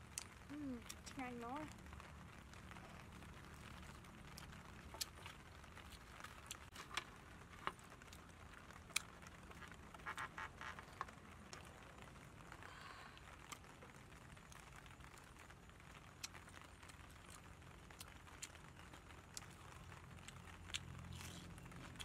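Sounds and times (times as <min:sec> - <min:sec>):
meat tearing with clicks and crackles: 0:02.8 - 0:11.7, 0:13.4 - 0:22.0.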